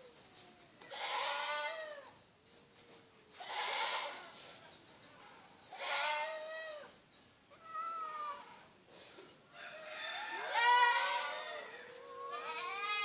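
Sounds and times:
cats yowling: 7.6 - 8.5, 10.4 - 13.0.

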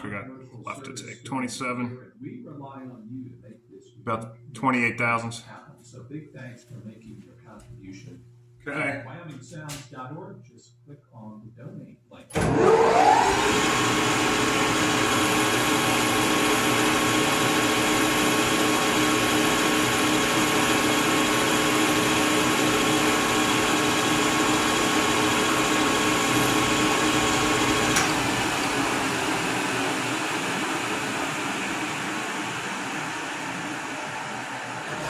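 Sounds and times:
metal lathe motor whine: 12.4 - 35.0
lathe switch click: 27.9 - 28.2.

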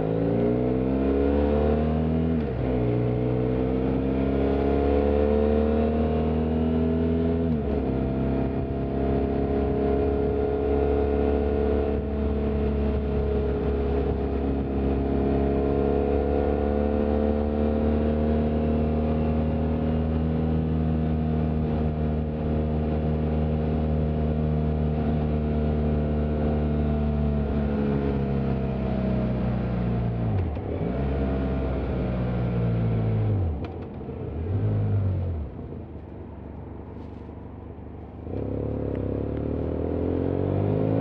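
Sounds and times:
motorcycle engine and exhaust: 0.0 - 41.0.

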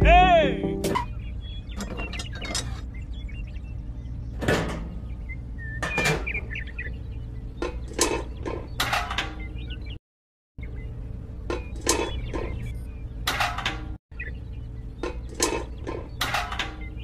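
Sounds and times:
steady low hum: 0.0 - 8.8.

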